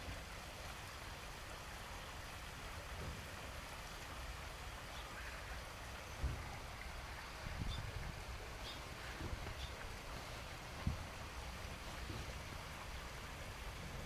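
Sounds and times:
wind rumbling on microphone: 0:06.1 - 0:14.0.

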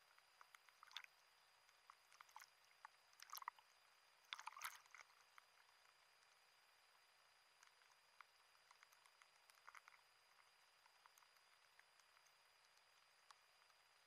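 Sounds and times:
sea water splashing: 0:03.2 - 0:03.6, 0:04.2 - 0:05.0.

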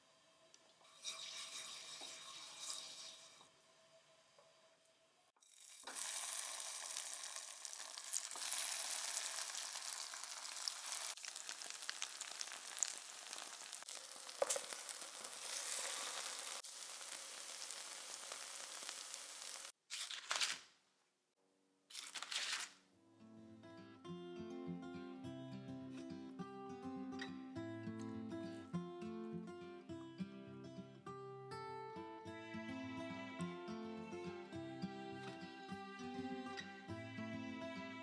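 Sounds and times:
patties sizzling in hot oil: 0:00.8 - 0:03.4, 0:05.4 - 0:19.8.

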